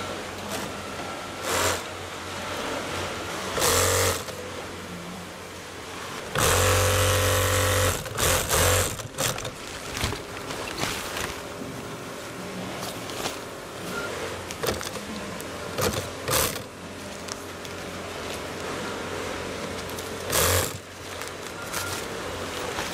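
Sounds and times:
low background hum: 0.0s - 22.9s
sewing machine stitching: 1.4s - 1.9s, 3.6s - 4.4s, 6.3s - 9.6s, 14.6s - 16.7s, 20.2s - 20.9s.

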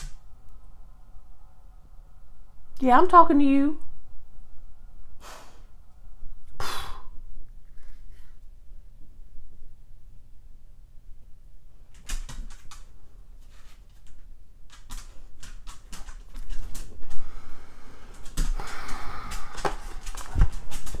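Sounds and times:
dog fidgeting clicks and knocks: 14.0s - 17.2s, 18.1s - 21.0s.

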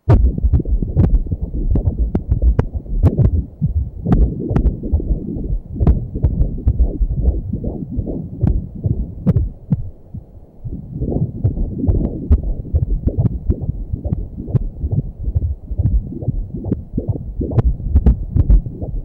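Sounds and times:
fetal heartbeat whooshing: 0.0s - 19.0s.

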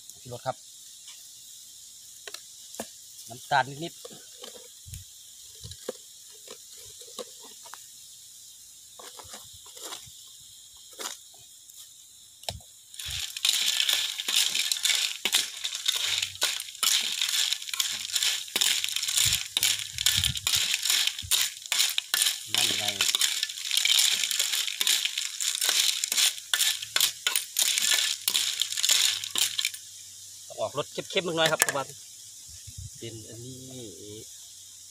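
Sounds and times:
stir-fry sizzling in a wok: 0.0s - 34.9s
metal ladle scraping wok: 13.0s - 29.8s.

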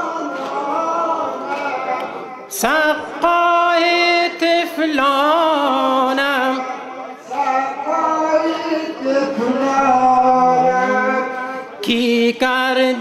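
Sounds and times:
voices chanting: 0.0s - 3.0s, 5.6s - 12.1s.

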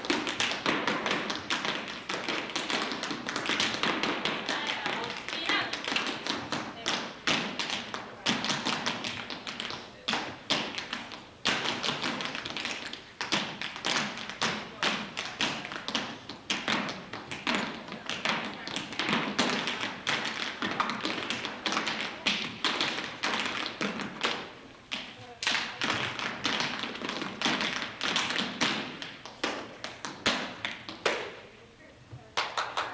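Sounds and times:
tap shoes striking stage floor: 0.0s - 31.4s.

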